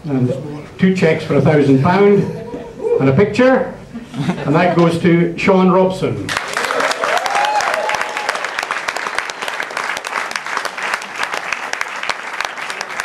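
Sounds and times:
audience applauding: 6.3s - 13.0s
hands clapping close by: 6.3s - 13.0s.

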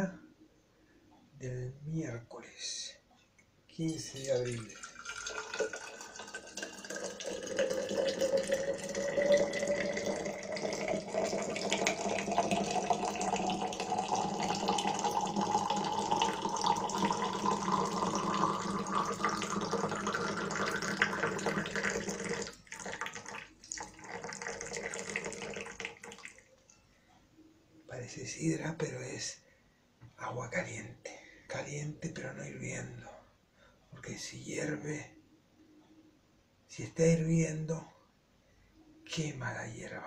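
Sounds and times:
hot water pouring from kettle: 3.8s - 26.5s
water trickling: 3.8s - 26.8s.

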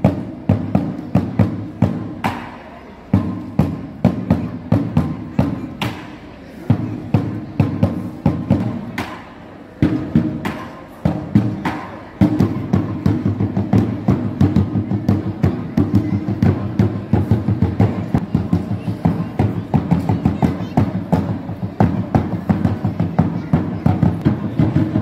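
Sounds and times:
drum music: 0.0s - 6.0s, 6.7s - 25.0s.

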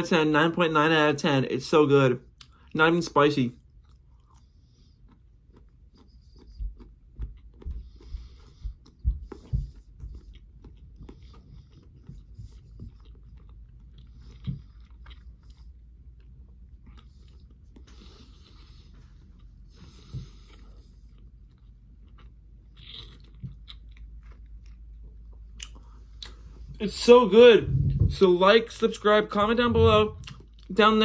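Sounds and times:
person chewing: 3.6s - 26.7s, 29.6s - 30.8s.

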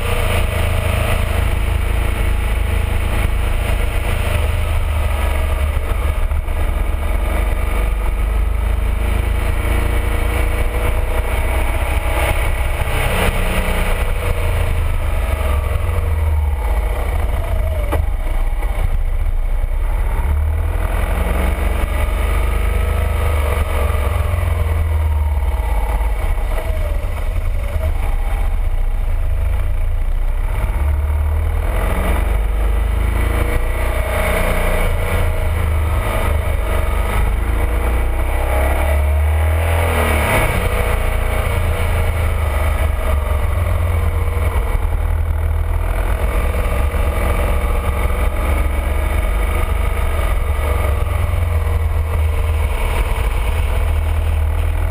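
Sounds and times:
motorcycle engine running: 0.0s - 54.9s.

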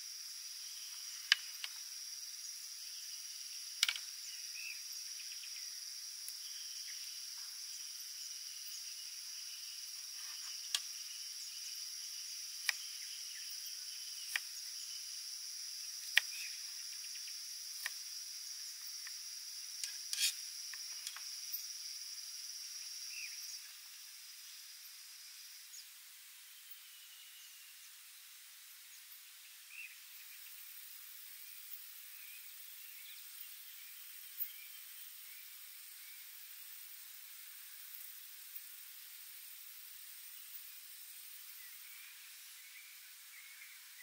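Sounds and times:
knife cutting on wooden board: 20.1s - 20.4s.

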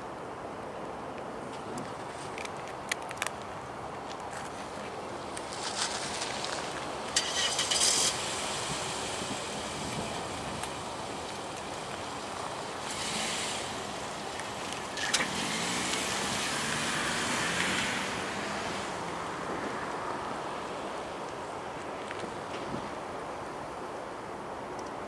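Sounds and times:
distant vehicles: 0.0s - 25.0s
wind: 0.0s - 25.0s
vehicle passing: 5.5s - 21.2s.

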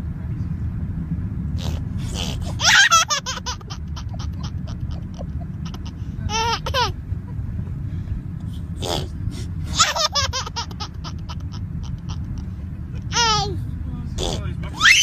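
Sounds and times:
steady low rumble: 0.0s - 15.0s
child giggling: 1.6s - 7.0s, 9.7s - 12.4s, 13.0s - 13.6s.

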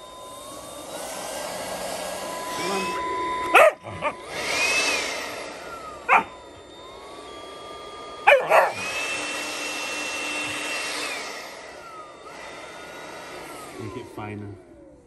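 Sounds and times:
leaf blower whining: 0.0s - 15.0s
puppy barking: 3.5s - 4.2s, 6.1s - 6.4s, 8.3s - 8.8s.

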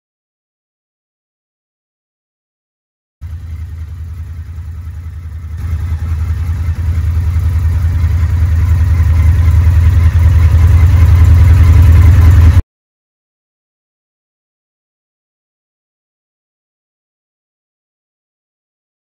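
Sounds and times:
motorcycle engine running: 3.2s - 12.6s.

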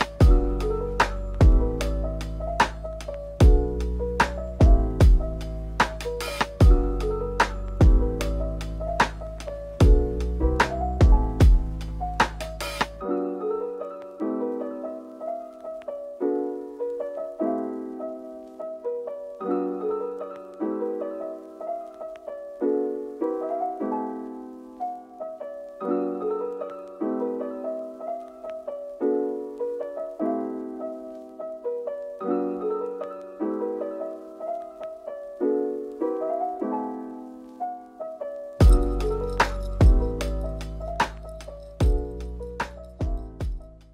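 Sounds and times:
slow piano music: 0.0s - 43.9s.

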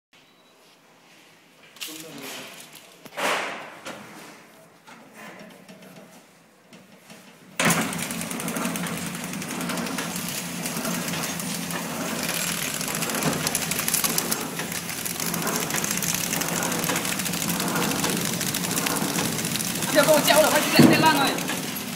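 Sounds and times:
packing machine rattling: 7.6s - 21.9s.

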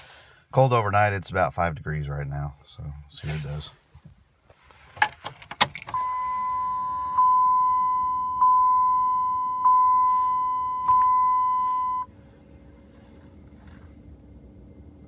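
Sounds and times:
keys jangling and clicking: 5.0s - 6.0s
dashboard warning chime: 5.9s - 12.1s.

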